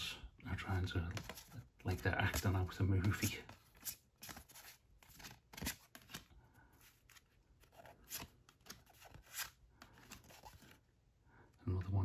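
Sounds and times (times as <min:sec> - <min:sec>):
cards flicking and sliding: 0:02.2 - 0:06.3, 0:07.1 - 0:10.7.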